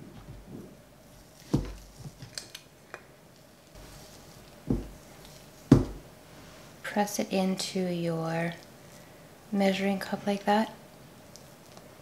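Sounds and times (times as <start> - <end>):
dull knocks: 4.7 - 5.0, 5.7 - 6.1.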